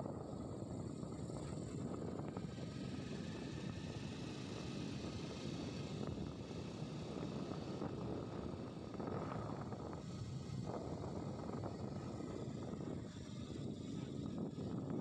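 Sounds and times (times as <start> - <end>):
vehicle engine and road rumble: 0.0 - 15.0.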